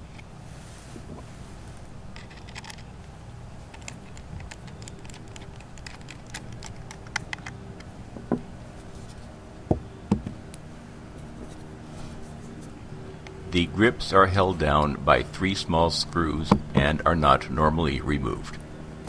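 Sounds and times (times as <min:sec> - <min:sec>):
steady low hum: 0:00.0 - 0:19.0
screwdriver clicks and scrapes: 0:03.7 - 0:07.6.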